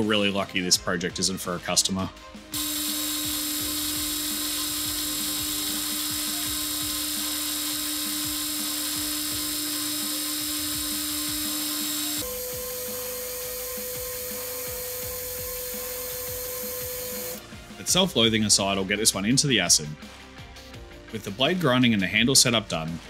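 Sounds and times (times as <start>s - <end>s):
power tool whining: 2.5s - 17.5s.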